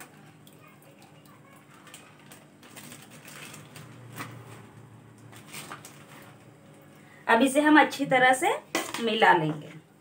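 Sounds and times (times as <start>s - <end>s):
plastic pouch clicks and rustles: 1.7s - 4.5s.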